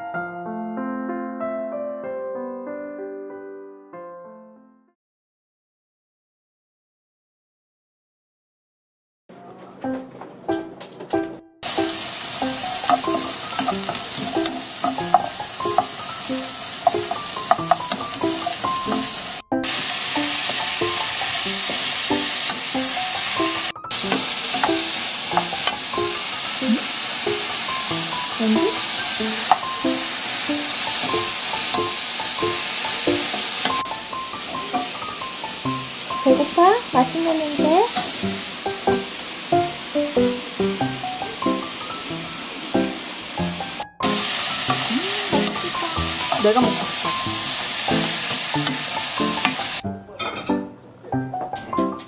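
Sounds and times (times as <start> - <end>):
meat and vegetables sizzling in pan: 11.6 - 49.8.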